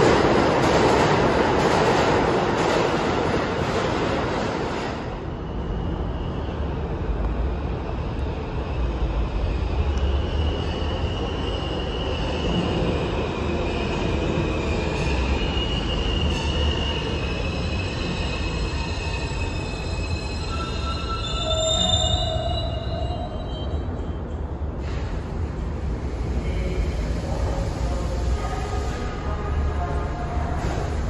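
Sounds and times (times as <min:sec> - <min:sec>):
subway train rumbling: 0:00.0 - 0:31.0
train wheels squealing: 0:05.3 - 0:06.9, 0:09.1 - 0:25.0.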